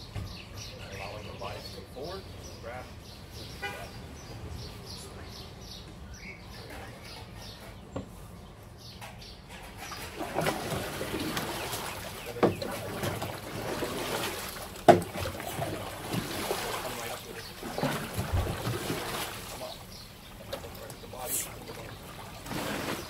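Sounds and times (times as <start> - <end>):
canoe paddle splashing water: 9.8 - 23.0
sharp knocks: 14.8 - 15.4.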